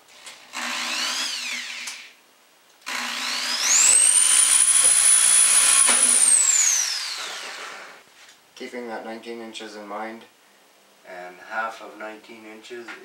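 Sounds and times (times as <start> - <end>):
electric drill whining: 0.1 - 2.2, 2.8 - 8.0.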